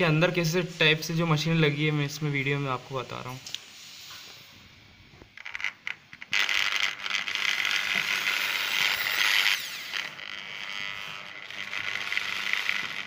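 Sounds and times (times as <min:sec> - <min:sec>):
cordless drill motor running: 0:05.4 - 0:13.0.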